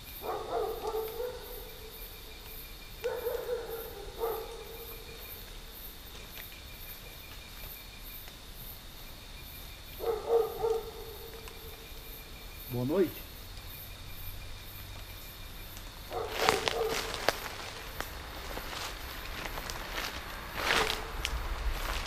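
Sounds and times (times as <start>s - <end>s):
insects chirping and droning: 0.0s - 22.0s
dog barking: 0.2s - 1.9s, 3.0s - 5.1s, 10.0s - 11.8s, 16.1s - 17.5s, 20.7s - 21.2s.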